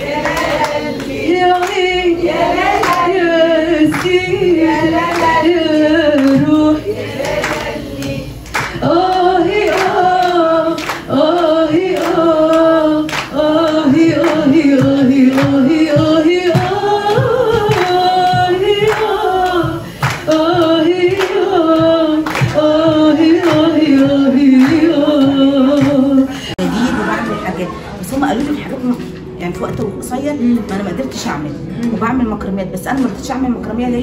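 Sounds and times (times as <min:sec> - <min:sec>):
audience clapping in time: 0:00.0 - 0:26.5
audience singing along: 0:00.0 - 0:29.2
woman singing into microphone: 0:00.0 - 0:32.0.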